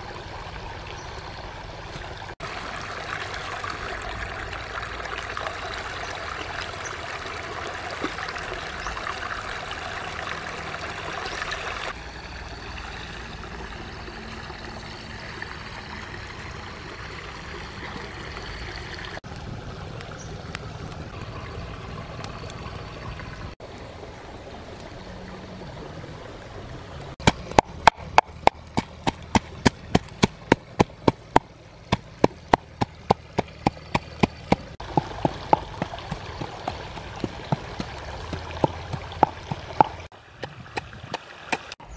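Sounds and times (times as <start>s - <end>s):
stream running over stones: 0.0s - 41.9s
pestle pounding in a mortar: 27.2s - 40.9s.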